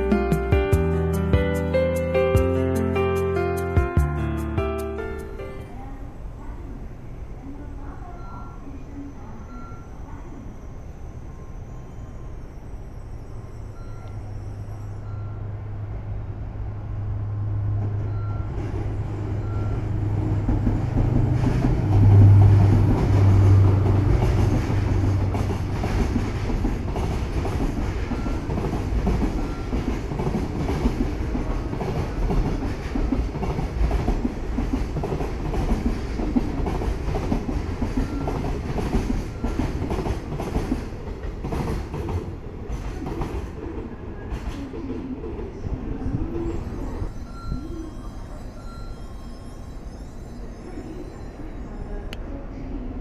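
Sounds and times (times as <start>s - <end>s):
locomotive engine drone: 0.0s - 39.5s
freight wagons rumbling: 17.8s - 43.2s.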